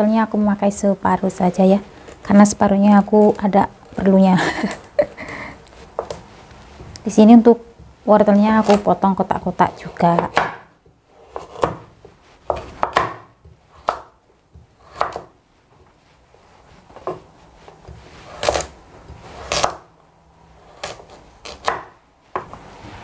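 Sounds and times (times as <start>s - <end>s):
cleaver chopping on wooden board: 10.2s - 10.7s, 12.5s - 14.2s, 14.8s - 15.3s, 20.8s - 22.0s.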